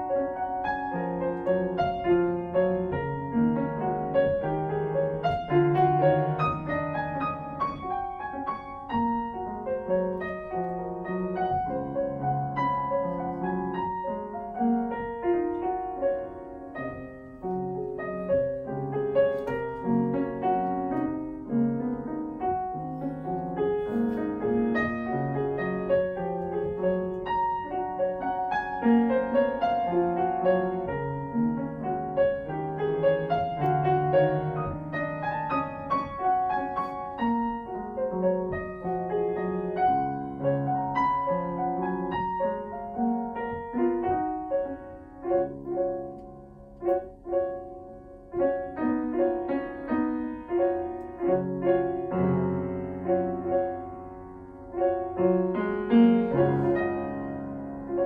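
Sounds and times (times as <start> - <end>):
grand piano classical piece: 0.0 - 58.0.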